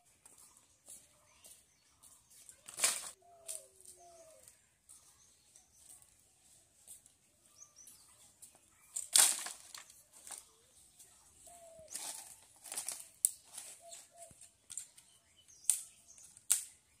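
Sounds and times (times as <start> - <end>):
faint bird chirps: 0.0 - 9.0, 10.0 - 12.4, 13.4 - 17.0
sticks clattering and breaking: 2.6 - 3.6, 8.9 - 10.5, 11.9 - 16.8
dry leaves rustling: 8.9 - 14.9
branches crashing onto firewood: 9.0 - 10.4, 11.9 - 14.0.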